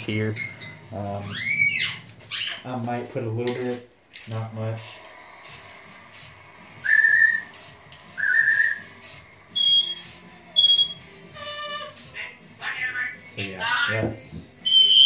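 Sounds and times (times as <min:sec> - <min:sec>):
parrot whistling: 0:00.1 - 0:02.6, 0:06.8 - 0:07.6, 0:08.2 - 0:13.9, 0:14.6 - 0:15.0
spray paint can hissing: 0:04.1 - 0:12.2.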